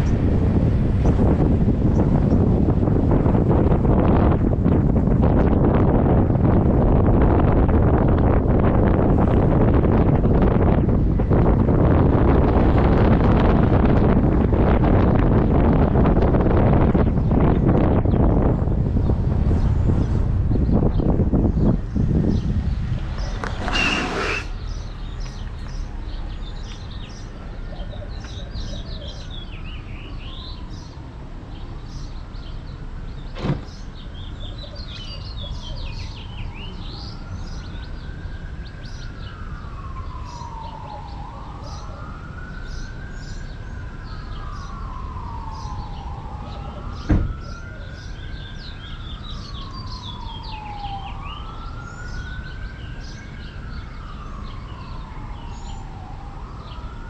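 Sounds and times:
street noise: 0:00.0 - 0:57.0
emergency vehicle siren wailing: 0:00.1 - 0:33.3, 0:34.0 - 0:57.0
small birds chirping: 0:19.0 - 0:56.9.

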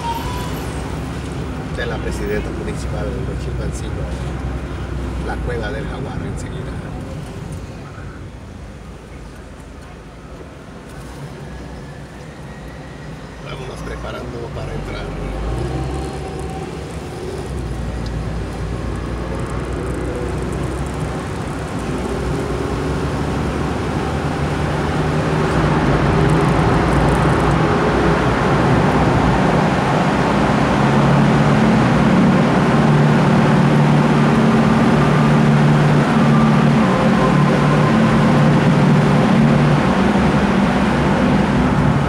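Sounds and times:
traffic engine and tyre noise: 0:00.0 - 0:42.0.

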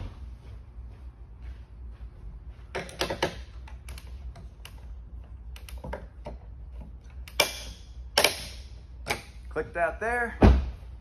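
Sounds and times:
torque tool sharp clicks: 0:07.2 - 0:09.3.

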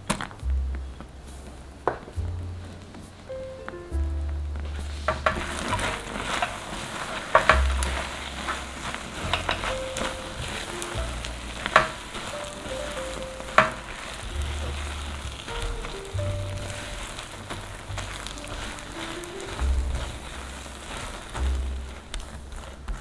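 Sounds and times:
soft background music: 0:00.0 - 0:23.0
spatula scraping sticky mixture: 0:04.8 - 0:23.0.

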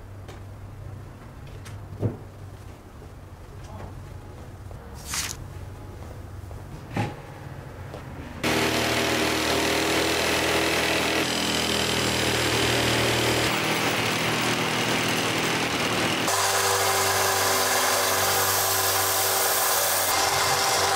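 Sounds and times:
jigsaw cutting wood: 0:08.4 - 0:20.9.

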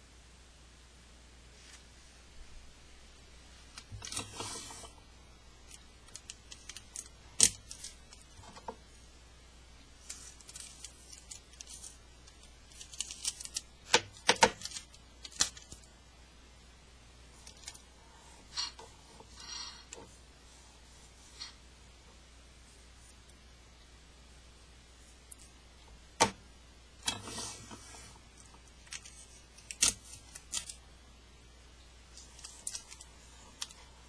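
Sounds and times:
sticky tape crinkling and tearing: 0:05.7 - 0:08.6, 0:10.0 - 0:15.9, 0:28.4 - 0:30.8, 0:32.1 - 0:33.8.

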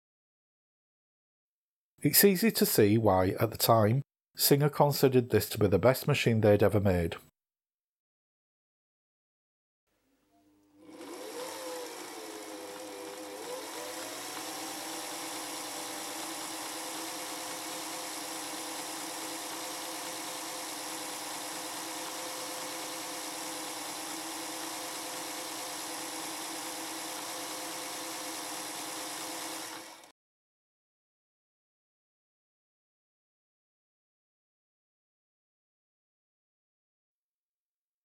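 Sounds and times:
sewing machine running: 0:10.8 - 0:30.1.

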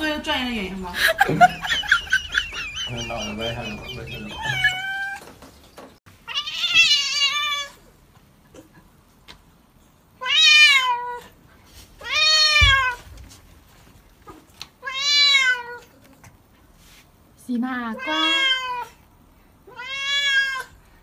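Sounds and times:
cat meowing loudly: 0:04.4 - 0:05.2, 0:06.2 - 0:07.8, 0:10.2 - 0:11.2, 0:12.0 - 0:13.0, 0:14.8 - 0:15.8, 0:18.0 - 0:19.0, 0:19.7 - 0:20.8.

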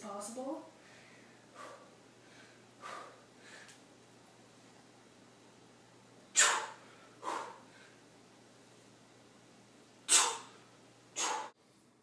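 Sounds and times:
person breathing hard: 0:00.8 - 0:03.8, 0:06.7 - 0:08.0.

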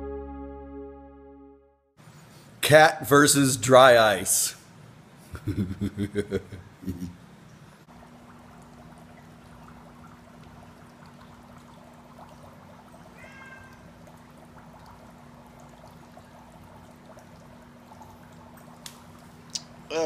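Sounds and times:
low steady hum: 0:00.0 - 0:20.0
dry ice bubbling in water: 0:07.9 - 0:19.9
cat meowing: 0:13.2 - 0:13.8.

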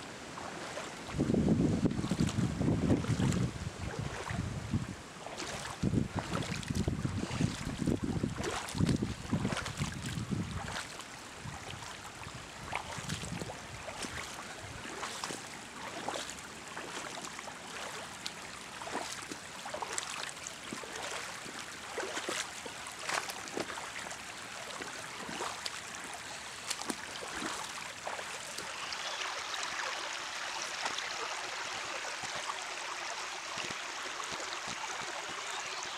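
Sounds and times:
stream babbling over stones: 0:05.2 - 0:35.9.

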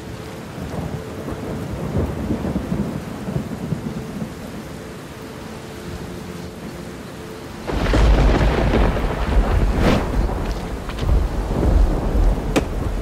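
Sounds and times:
rain: 0:00.0 - 0:13.0
rumbling thunder: 0:07.6 - 0:13.0.

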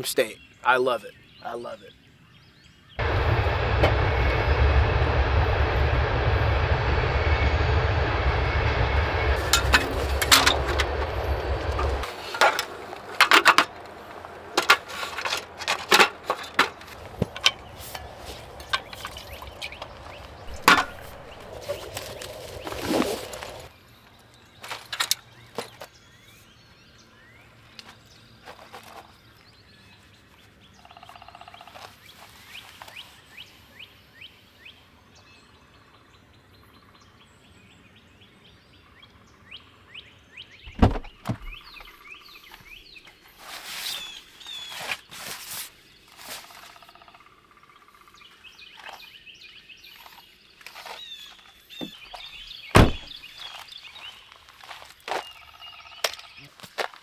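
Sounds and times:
birds chirping: 0:00.0 - 0:56.6
rustling of camp gear: 0:09.4 - 0:26.0, 0:27.8 - 0:30.5, 0:31.7 - 0:33.4, 0:41.0 - 0:46.9, 0:49.8 - 0:55.4
sharp thunks: 0:16.1 - 0:21.6, 0:40.7 - 0:41.9, 0:52.7 - 0:53.2.

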